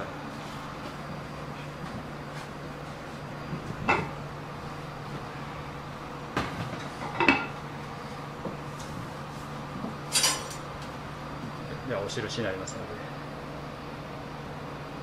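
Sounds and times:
low kitchen hum: 0.0 - 15.0
tableware clinking: 7.0 - 7.6, 10.1 - 10.6.

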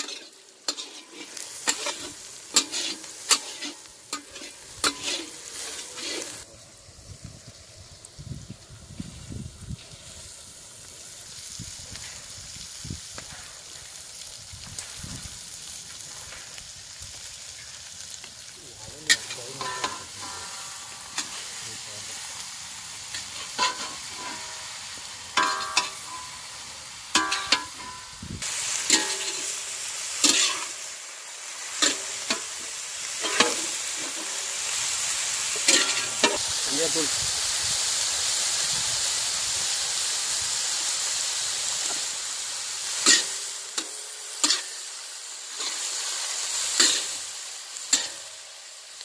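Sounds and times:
metal ladle scraping iron pan: 0.0 - 6.4, 19.1 - 21.5, 23.1 - 24.7, 25.4 - 26.4, 27.1 - 28.1, 28.8 - 29.6, 30.2 - 30.8, 33.2 - 34.4, 35.6 - 36.4, 43.0 - 44.8, 47.9 - 48.2
cabbage sizzling in hot oil: 0.0 - 49.0.

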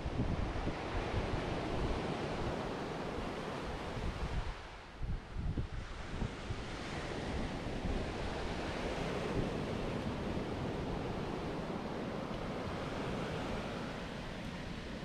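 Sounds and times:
ocean surf breaking on beach: 0.0 - 15.0
wind rumbling on microphone: 0.0 - 15.0.

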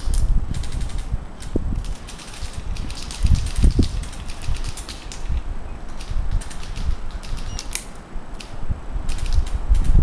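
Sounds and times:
microphone handling noise: 0.0 - 7.5
wind rumble: 0.0 - 10.0.

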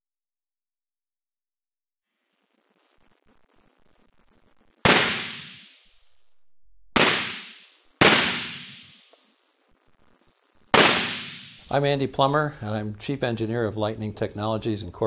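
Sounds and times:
sharp electric spark cracks: 4.8 - 6.0, 7.0 - 9.4, 10.7 - 11.8.

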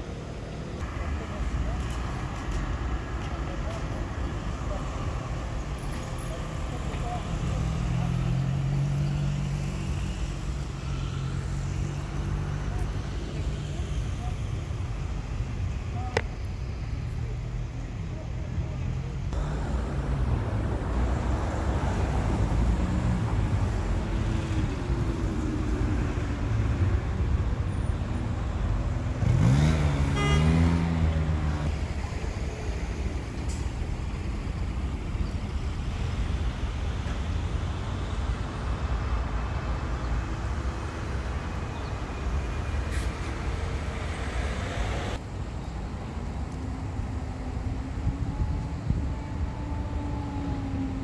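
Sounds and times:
low rumble of passing traffic: 0.0 - 51.0
vehicle engine accelerating past: 29.2 - 31.7.

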